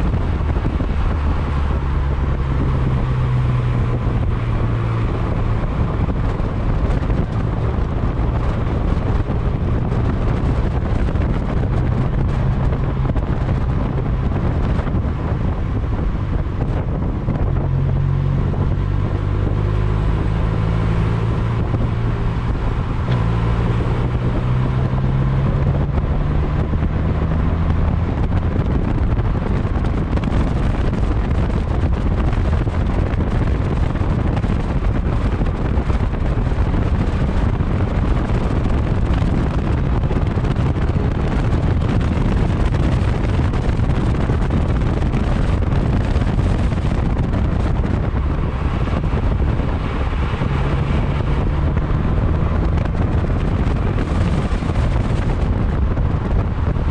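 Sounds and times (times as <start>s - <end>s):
car engine revving: 0.0s - 56.9s
wind buffeting: 0.0s - 56.9s.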